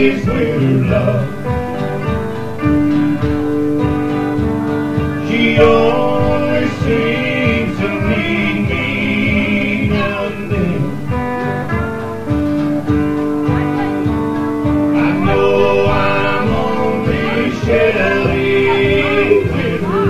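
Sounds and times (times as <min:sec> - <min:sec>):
man singing: 0:00.0 - 0:02.1, 0:05.0 - 0:11.3, 0:14.8 - 0:20.0
acoustic guitar: 0:00.0 - 0:20.0.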